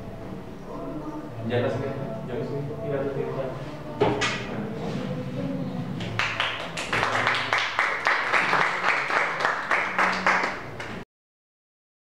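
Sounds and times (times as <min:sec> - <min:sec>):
small audience clapping: 0:06.0 - 0:11.0.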